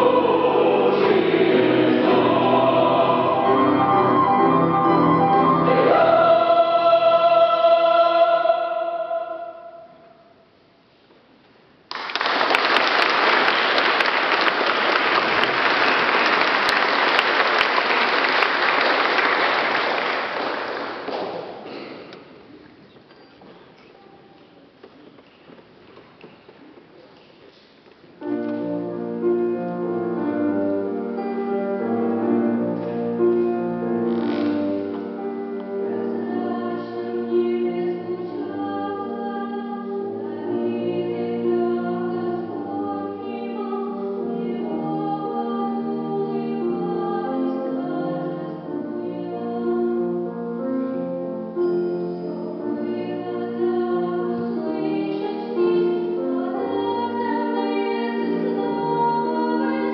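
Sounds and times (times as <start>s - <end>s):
choir singing: 0.0s - 10.2s, 34.5s - 59.9s.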